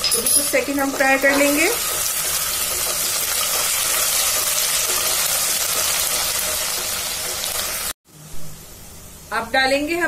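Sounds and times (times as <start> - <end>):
onions sizzling in hot oil: 0.4 - 8.0.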